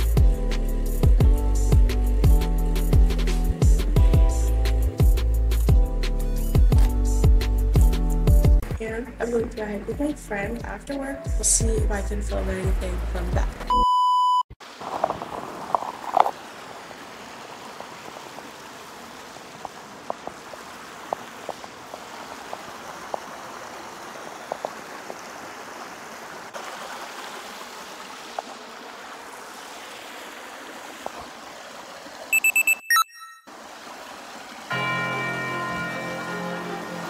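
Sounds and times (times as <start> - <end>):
loud electronic beeps: 32.3 - 33.5.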